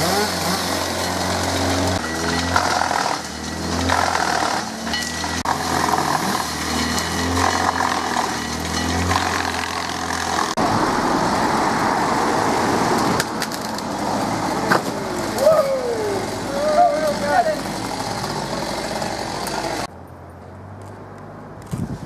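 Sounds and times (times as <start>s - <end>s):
chainsaw: 0.0s - 10.6s, 13.8s - 19.9s
rough noisy machine: 0.0s - 19.9s
wood chipper engine drone: 0.0s - 19.9s.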